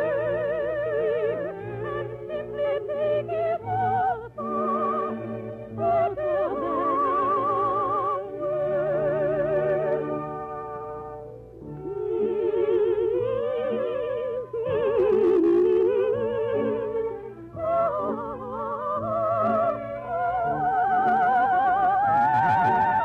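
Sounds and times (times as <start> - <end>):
operatic singing with vibrato: 0.0 - 23.0.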